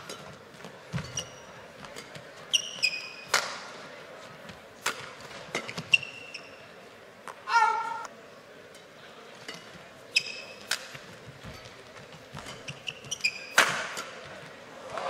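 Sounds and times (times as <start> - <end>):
shoes squeaking on court: 0.0 - 3.5, 4.2 - 7.4, 9.4 - 14.6
racket striking shuttlecock: 2.8 - 3.7, 4.8 - 5.9, 12.4 - 14.3.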